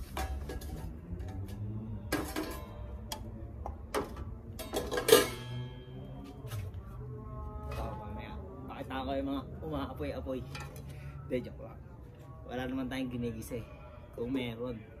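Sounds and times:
metal pots and pans clanking: 0:00.0 - 0:01.5, 0:02.1 - 0:03.3, 0:03.9 - 0:05.8, 0:10.4 - 0:10.9.

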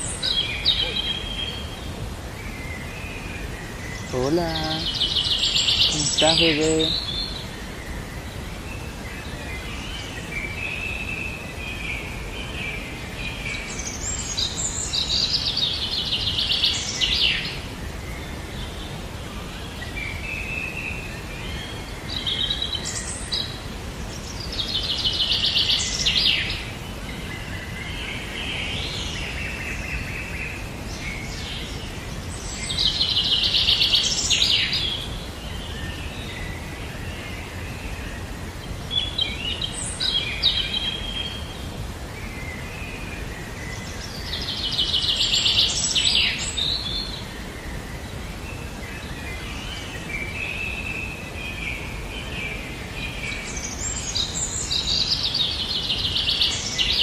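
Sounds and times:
background hiss: 0:00.0 - 0:57.0
soft bird chirps: 0:00.0 - 0:57.0
songbird trilling: 0:04.0 - 0:07.4.

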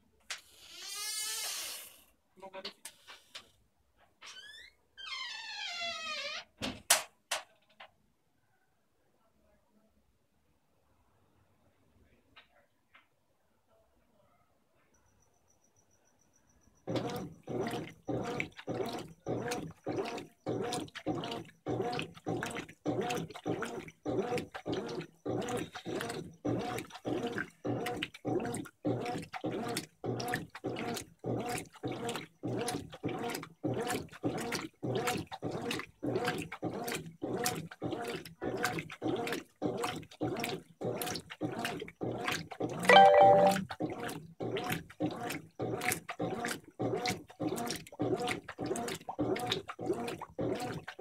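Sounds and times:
washing machine sloshing: 0:16.8 - 0:51.0.

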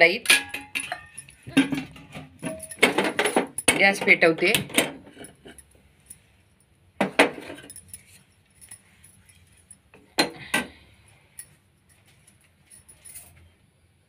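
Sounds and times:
metal kitchenware clinking: 0:00.0 - 0:05.7, 0:07.0 - 0:08.2, 0:10.0 - 0:10.8.

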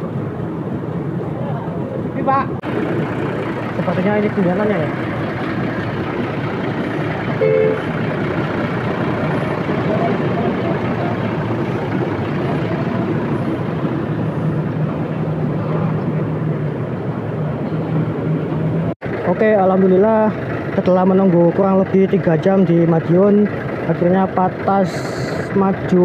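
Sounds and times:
diesel bus engine drone: 0:00.0 - 0:26.0
short tone: 0:07.4 - 0:07.9.

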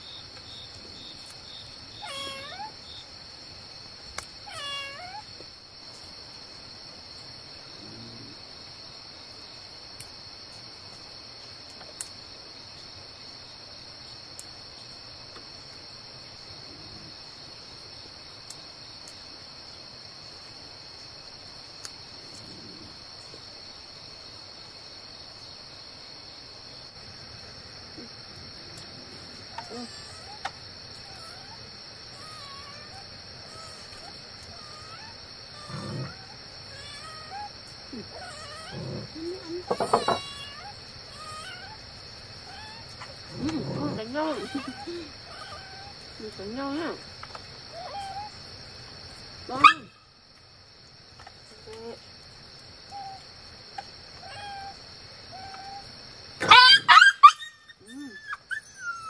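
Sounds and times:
high-pitched insect drone: 0:29.0 - 0:47.0.

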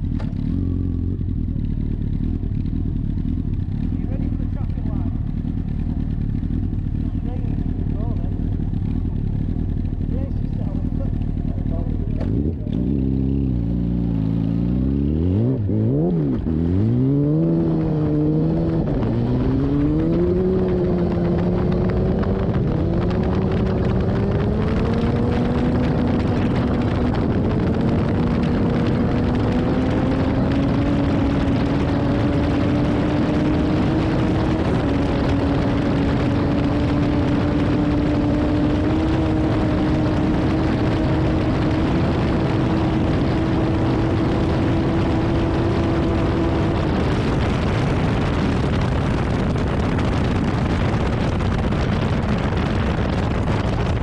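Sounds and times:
motorcycle engine at full throttle: 0:00.0 - 0:54.0
wind rushing over microphone: 0:11.7 - 0:54.0.

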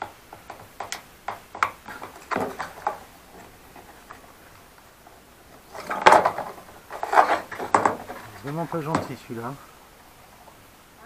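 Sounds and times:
knife scraping plastic: 0:05.6 - 0:08.6.

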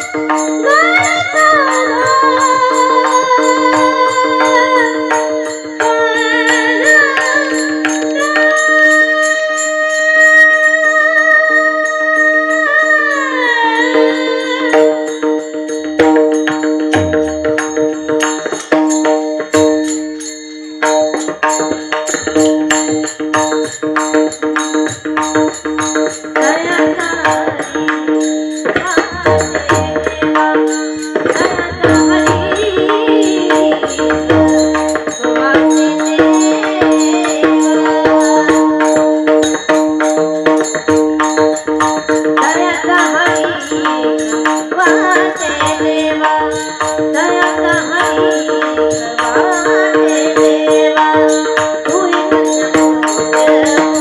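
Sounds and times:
woman singing into microphone: 0:00.0 - 0:15.8, 0:25.2 - 0:54.0
fast percussion: 0:00.0 - 0:54.0
held accompanying notes: 0:00.0 - 0:54.0.

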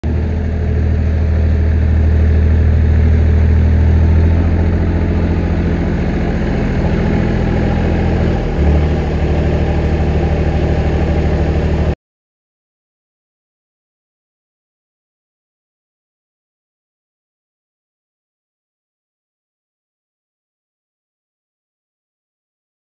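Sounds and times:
diesel tractor engine running: 0:00.0 - 0:12.0.

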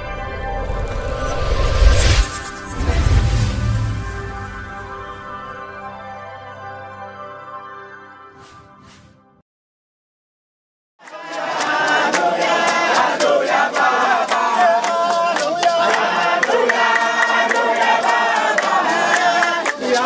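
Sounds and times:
crowd singing in chorus: 0:11.0 - 0:20.0
hand-clapping in time: 0:11.0 - 0:20.0.

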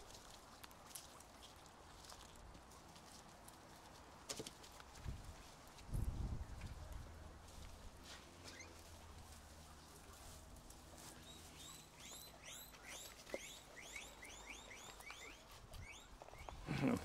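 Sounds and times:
guinea pigs squeaking: 0:08.4 - 0:09.0, 0:11.0 - 0:16.7.

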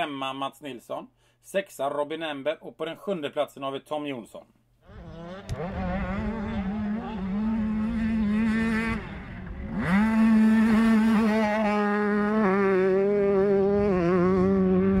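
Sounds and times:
motocross bike engine revving: 0:04.8 - 0:15.0.

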